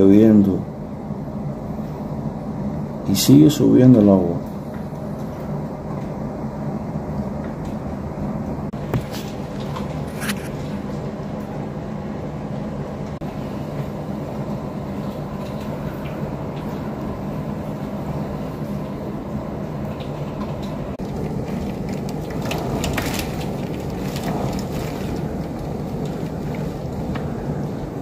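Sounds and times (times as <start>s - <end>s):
storm wind gusting on microphone: 0.0s - 28.0s
sharp crackles: 21.0s - 28.0s.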